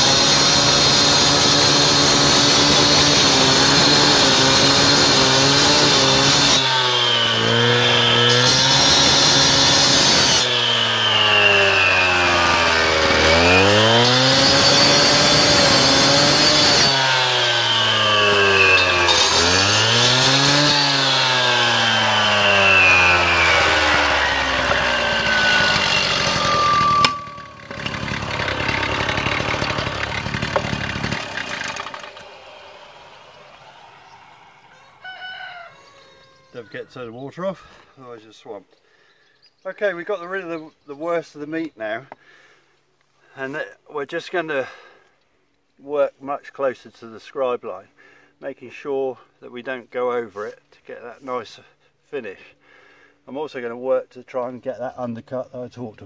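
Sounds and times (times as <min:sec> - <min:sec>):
cut-off saw cutting stone: 0:00.0 - 0:35.0.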